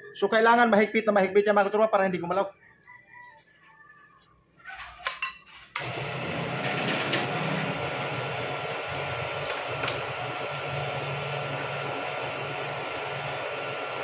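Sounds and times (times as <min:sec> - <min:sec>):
milling machine humming: 0:05.8 - 0:14.0.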